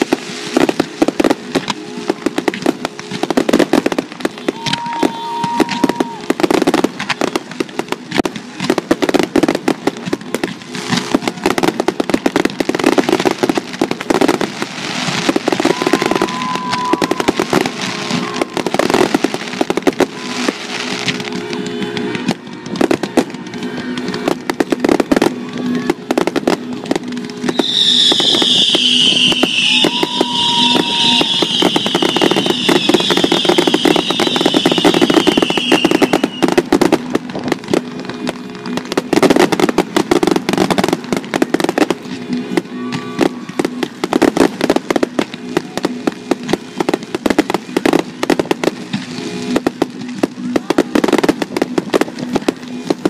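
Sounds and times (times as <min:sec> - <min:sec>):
firework bursts and crackling: 0:00.0 - 0:53.0
high falling whistle: 0:27.5 - 0:36.5.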